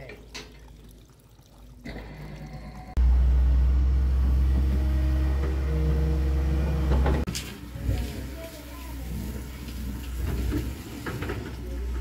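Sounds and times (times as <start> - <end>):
engine hum: 2.7 - 7.3
diesel engine rumbling: 3.0 - 7.3.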